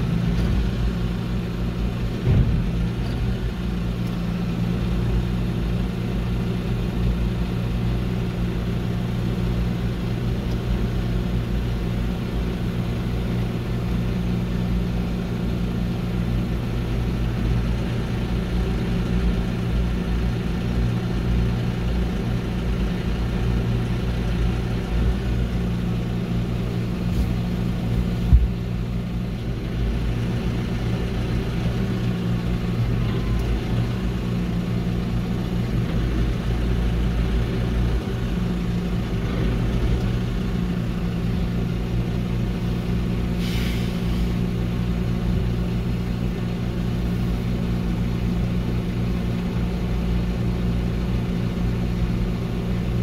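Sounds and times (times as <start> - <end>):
diesel engine running: 0.0 - 53.0
short hiss: 43.4 - 44.3.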